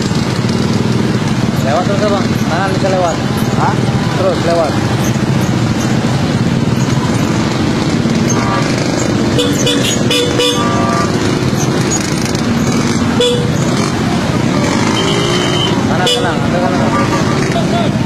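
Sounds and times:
traffic engines running: 0:00.0 - 0:18.0
vehicle horns tooting: 0:08.1 - 0:13.9, 0:14.6 - 0:18.0.

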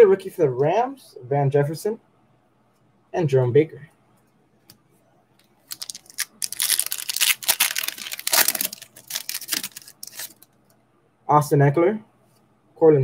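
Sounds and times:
wrapper crinkling: 0:05.4 - 0:10.5
foil card pack being torn open: 0:05.7 - 0:10.4.

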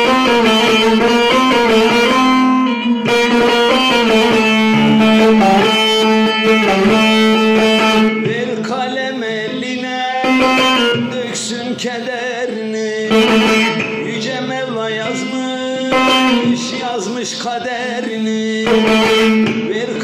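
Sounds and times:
ringing drone note: 0:00.0 - 0:08.6, 0:10.2 - 0:11.2, 0:13.1 - 0:16.9
plucked saz melody: 0:00.0 - 0:20.0.

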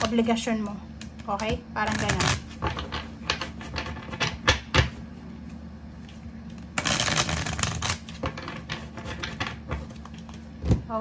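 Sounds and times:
cards being riffled: 0:06.7 - 0:08.3.

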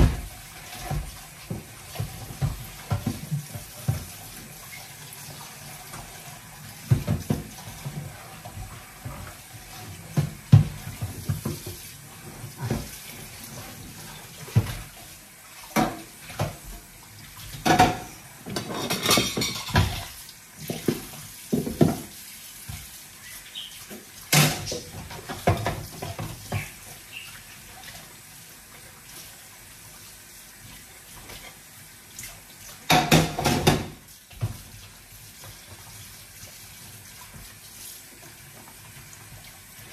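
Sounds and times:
tap water running: 0:00.0 - 0:39.9
crockery clinking and clattering: 0:17.6 - 0:20.1.

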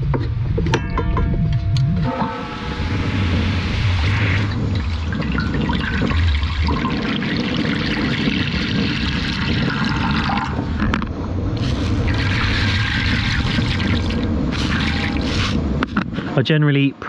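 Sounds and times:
running water: 0:02.3 - 0:10.8.

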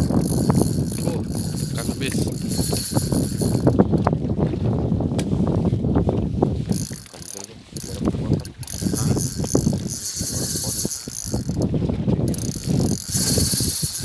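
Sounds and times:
fishing reel ratchet clicking: 0:00.0 - 0:04.0, 0:06.7 - 0:11.7, 0:12.3 - 0:14.0.

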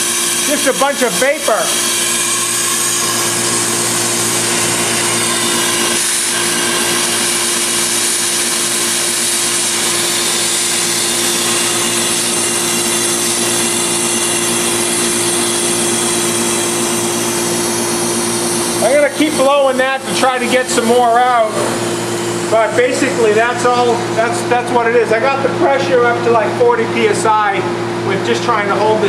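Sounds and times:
gas hissing from hose: 0:00.0 - 0:23.2
steady low hum: 0:00.0 - 0:29.0.

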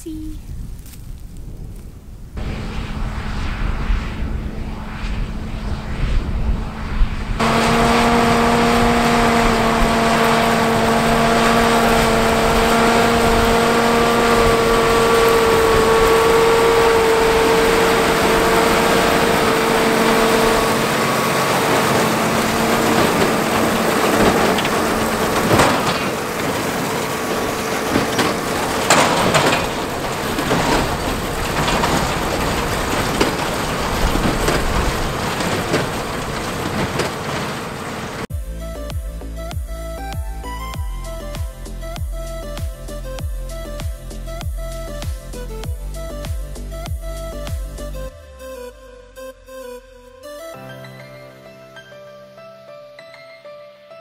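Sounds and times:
pitched whine: 0:02.3 - 0:43.2
tractor and baler running: 0:06.9 - 0:48.1.

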